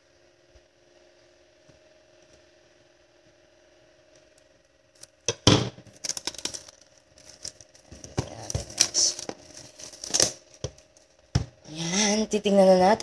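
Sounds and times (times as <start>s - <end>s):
plastic wrap crackling and tearing: 5.9s - 11.2s.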